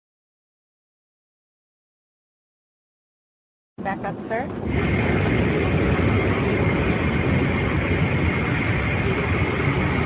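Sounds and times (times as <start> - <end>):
jet engines rumbling in flight: 3.8 - 10.0.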